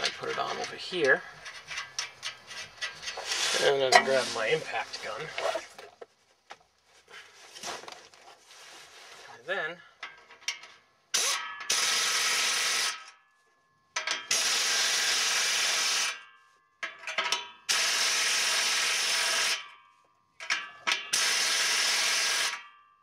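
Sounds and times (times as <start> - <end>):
impact wrench running: 21.1 - 22.6.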